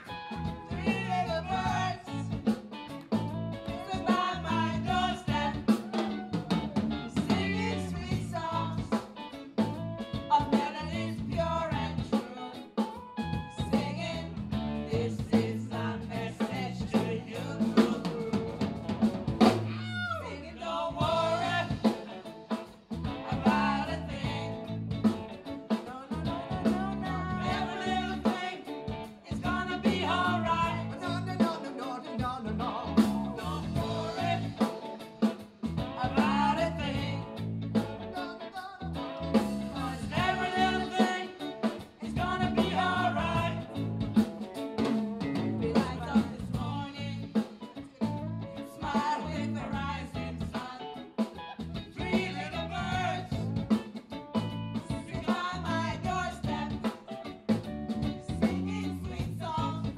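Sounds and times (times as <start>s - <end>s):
several voices singing: 0.0s - 2.5s, 3.6s - 9.0s, 13.6s - 18.8s, 19.7s - 35.2s, 35.8s - 37.5s, 38.1s - 44.1s, 45.3s - 53.9s, 54.8s - 57.1s
drum kit steady beat: 0.0s - 20.0s, 20.9s - 59.9s
bass guitar: 0.0s - 59.9s
electric guitars: 0.0s - 59.9s.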